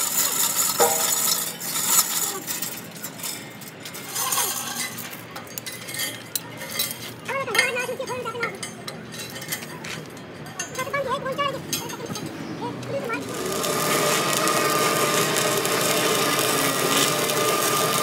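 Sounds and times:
metal tools clinking: 0:00.0 - 0:12.3
voices talking in background: 0:02.0 - 0:13.7.

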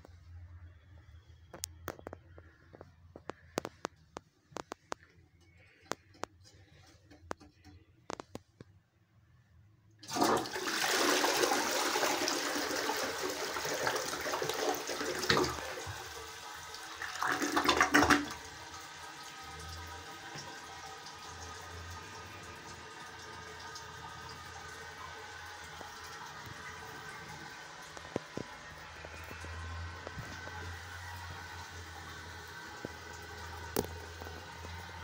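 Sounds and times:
toilet flushing: 0:10.0 - 0:35.0.

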